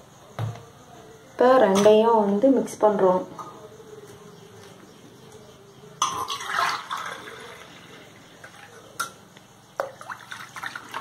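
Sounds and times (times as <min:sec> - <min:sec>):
liquid splashing between steel vessels: 0:06.0 - 0:07.8, 0:09.8 - 0:11.0.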